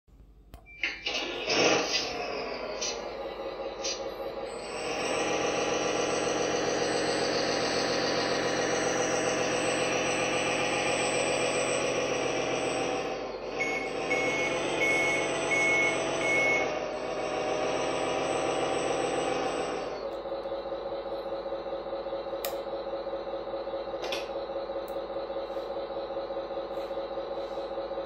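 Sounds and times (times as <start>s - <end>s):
simulated diesel engine from speaker: 0.2s - 28.0s
reversing beeps: 0.7s - 1.1s, 13.5s - 16.8s.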